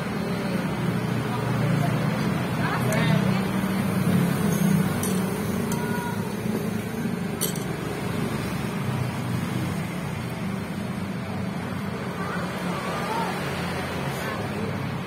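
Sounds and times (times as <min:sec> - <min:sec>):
fork and spoon clinking on bowl: 0:07.4 - 0:07.8.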